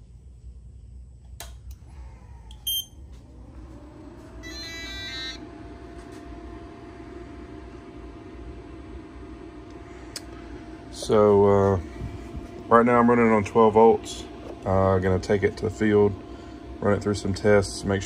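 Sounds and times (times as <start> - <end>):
cooling fans whirring: 0.0 - 18.0
low hum and steady tone: 0.0 - 18.0
electronic start-up tune: 4.4 - 6.1.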